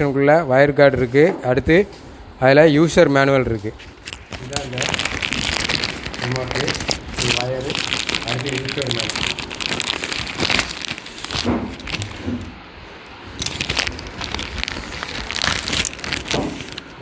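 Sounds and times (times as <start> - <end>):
plastic bag crinkling: 3.8 - 12.6, 13.3 - 17.0.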